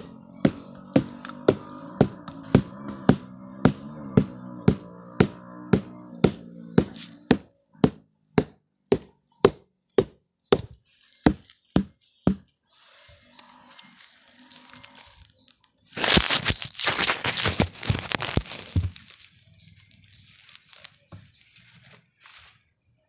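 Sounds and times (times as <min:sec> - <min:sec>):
sharp knocks on flower stalk: 0:00.4 - 0:12.5
rustling and crackling: 0:13.4 - 0:22.6.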